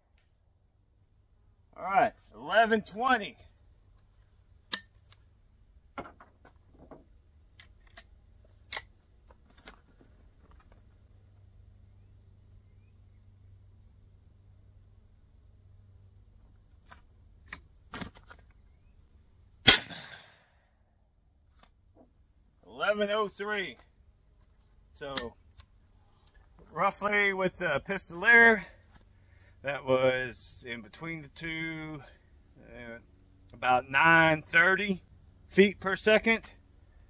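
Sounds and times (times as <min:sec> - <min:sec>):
clicks of rifle being handled: 0:07.6 - 0:08.1, 0:08.7 - 0:10.8, 0:25.1 - 0:26.4
loud gunshot: 0:19.6 - 0:20.5.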